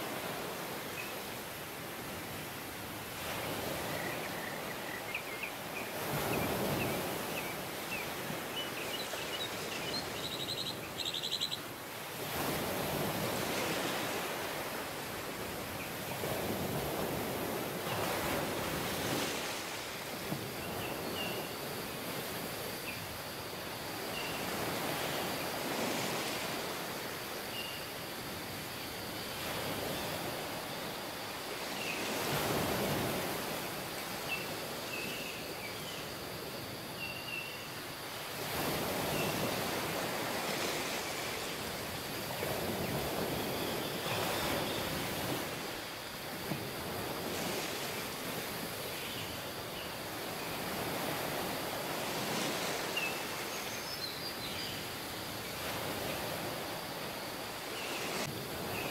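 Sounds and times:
ocean waves washing ashore: 0.0 - 58.9
bird chirps: 8.9 - 11.6.

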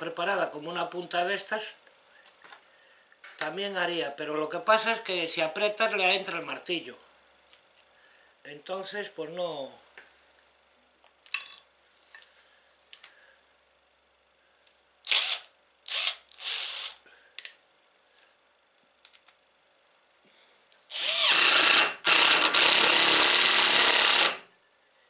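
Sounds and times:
impact driver hammering screw: 20.9 - 24.4.

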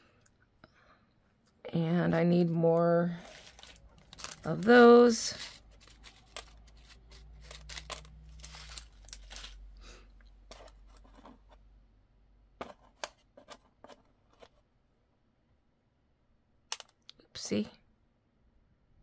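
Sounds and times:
plastic packaging rustling: 3.1 - 9.8
beads clicking: 3.2 - 9.6.

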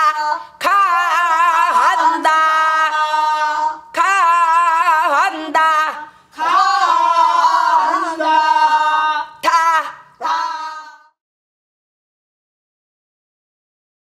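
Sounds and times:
women singing unaccompanied folk song: 0.0 - 11.2.

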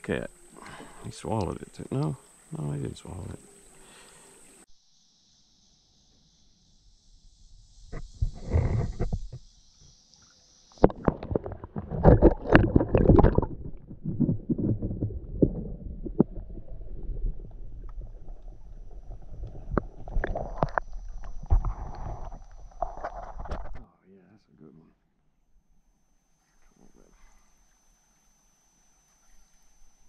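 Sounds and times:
muffled underwater sloshing and gurgling: 10.8 - 23.8.

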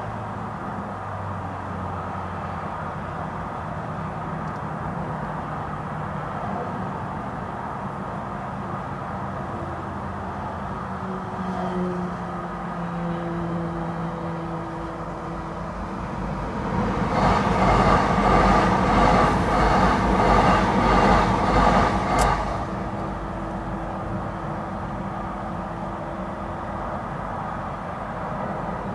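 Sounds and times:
electric train passing: 7.0 - 28.9
sharp click: 22.1 - 22.5.

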